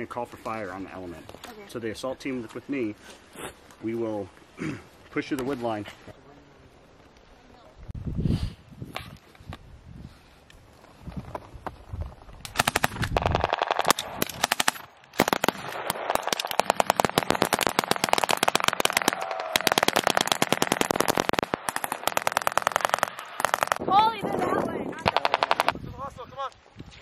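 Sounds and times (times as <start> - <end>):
machine gun bursts: 12.5 - 23.8, 25.0 - 25.7
rifle fire: 12.5 - 23.9, 25.0 - 25.8.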